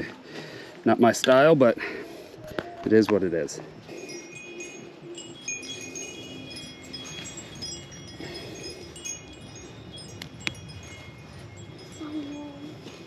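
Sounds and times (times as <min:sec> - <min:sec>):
wind chimes ringing: 0:02.9 - 0:13.0.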